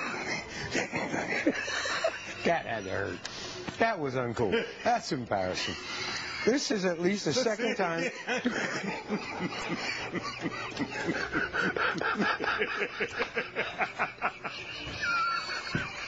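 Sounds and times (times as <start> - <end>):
people laughing: 0.0 - 3.4, 4.4 - 16.0.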